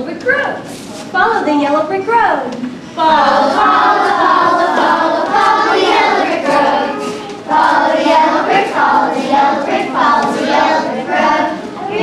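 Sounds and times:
children singing in chorus: 3.0 - 12.0.

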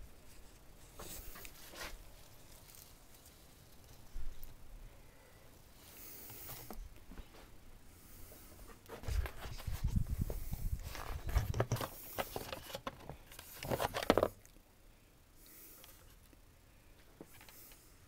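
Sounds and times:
hands handling plastic toy truck: 0.2 - 4.5, 8.7 - 14.5.

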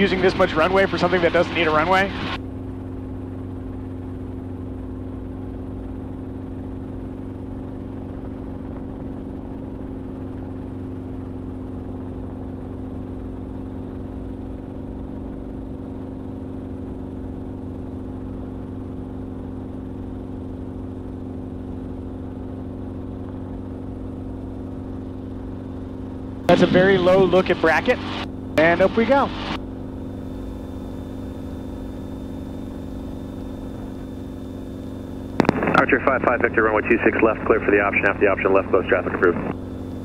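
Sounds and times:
helicopter engine and rotors droning: 0.0 - 40.0.

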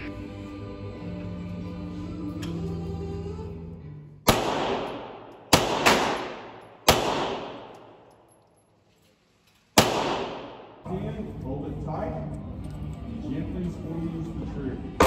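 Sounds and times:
background music: 0.0 - 8.6, 9.8 - 15.0
gunshots echoing indoors: 4.2 - 8.6, 9.7 - 10.9.

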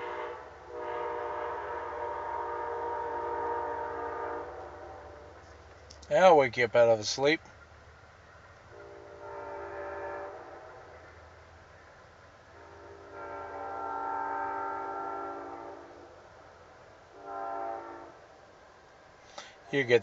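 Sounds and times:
train horn blasts: 0.0 - 5.4, 8.7 - 11.2, 12.5 - 16.3, 17.1 - 18.2.

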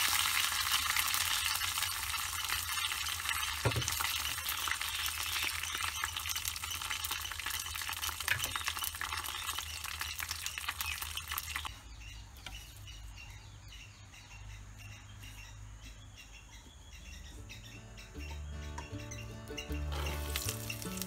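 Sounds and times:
leaves sizzling in a pan: 0.0 - 11.7, 20.0 - 21.0.

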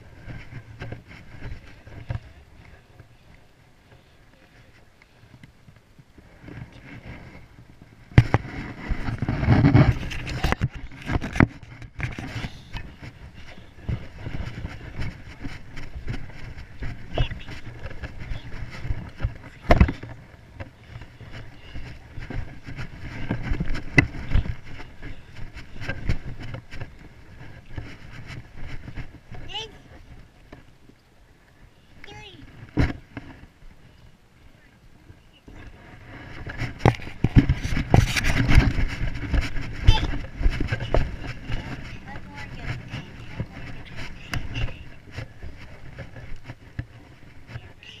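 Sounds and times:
camera handling scrapes: 35.9 - 48.0.

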